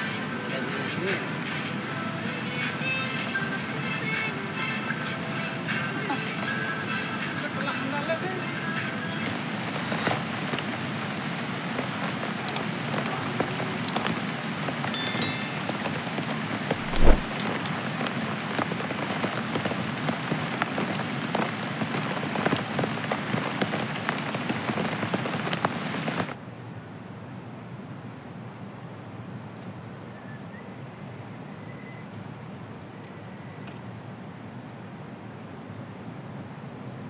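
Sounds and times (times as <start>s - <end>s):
heavy rain: 7.2s - 14.9s, 15.8s - 26.4s
loud thump: 16.9s - 17.3s.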